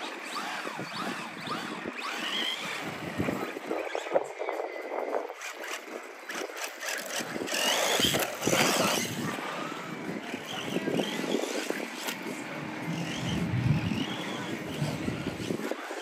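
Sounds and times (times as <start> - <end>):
rc car motors whining: 0.0 - 16.0.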